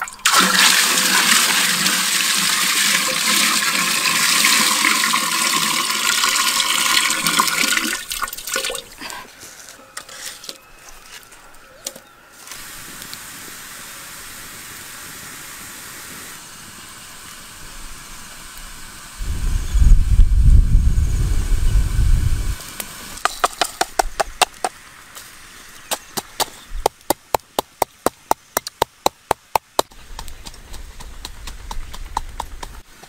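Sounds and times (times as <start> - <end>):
water pouring into a pot: 0.0 - 9.0
steady hiss: 12.2 - 33.0.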